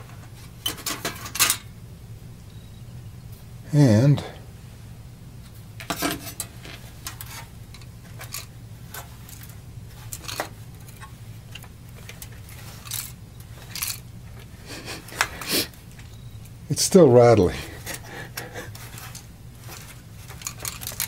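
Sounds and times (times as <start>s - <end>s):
plastic pieces rattling inside console: 19.0s - 21.0s.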